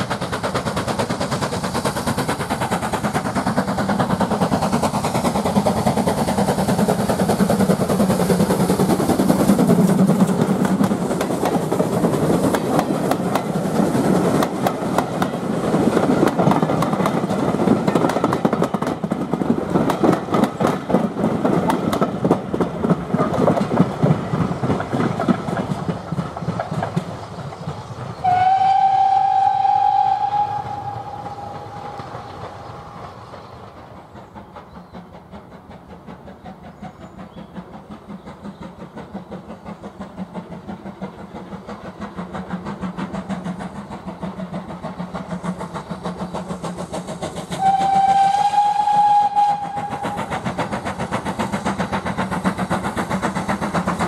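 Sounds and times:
steam locomotive exhaust beats: 0.0 - 54.0
train coaches clattering: 0.0 - 54.0
steam whistle blast: 28.2 - 32.1, 47.6 - 50.3.

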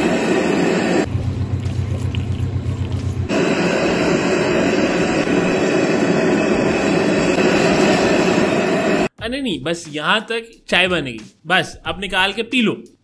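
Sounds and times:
gas burner roaring: 0.0 - 9.1
low hum: 0.0 - 9.1.

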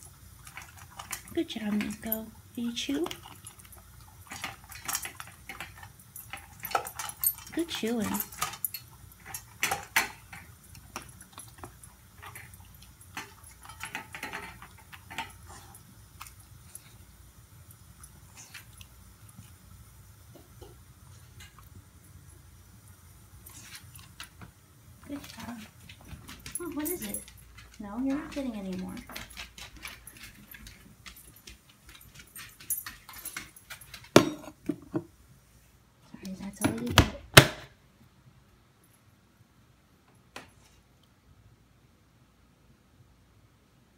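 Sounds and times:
dog chewing: 0.0 - 2.1, 3.0 - 22.0, 23.1 - 34.4
dog bowl clinking: 0.4 - 16.8, 25.1 - 35.0
light jingling: 0.8 - 19.4, 25.0 - 34.5.

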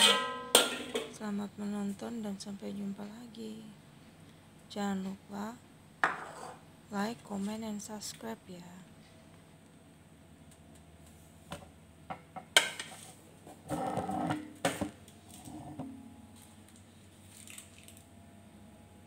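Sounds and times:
kitchen knocks and clinks: 0.0 - 1.2.

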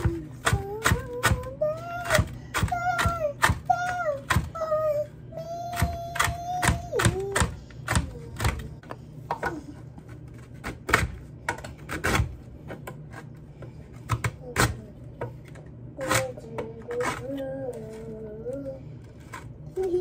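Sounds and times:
knife chopping on cutting board: 10.6 - 15.3.

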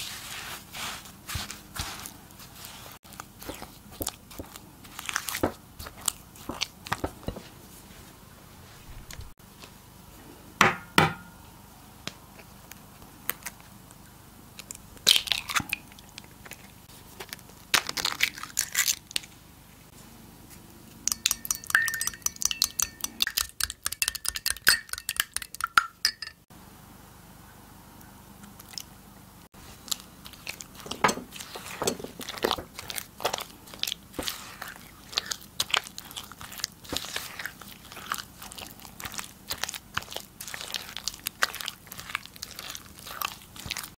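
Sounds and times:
spatula mixing sticky batter: 0.0 - 8.2, 29.6 - 43.9
eggs cracking: 21.0 - 26.5
whisk clinking against glass: 21.1 - 26.4.

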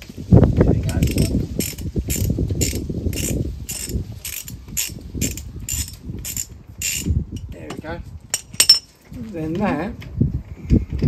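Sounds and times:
socket ratchet clicking: 1.0 - 7.5.

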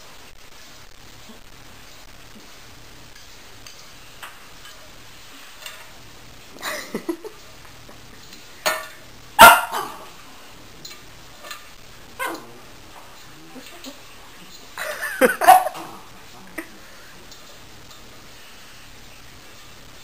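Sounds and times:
small dog barking: 9.4 - 10.1, 12.2 - 12.6, 15.4 - 16.0.

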